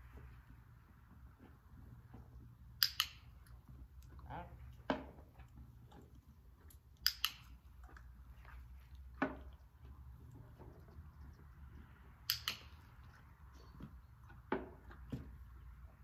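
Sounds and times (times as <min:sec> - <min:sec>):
training clicker clicking: 0:02.8 - 0:03.3, 0:12.2 - 0:12.8
horse chewing: 0:03.5 - 0:16.0.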